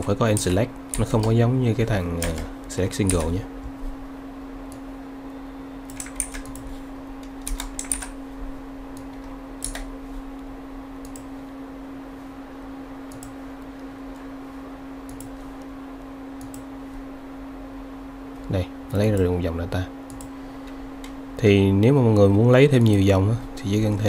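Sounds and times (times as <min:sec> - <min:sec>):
low electrical hum: 0:00.0 - 0:24.0
keyboard keystrokes: 0:05.9 - 0:08.2, 0:09.0 - 0:09.9.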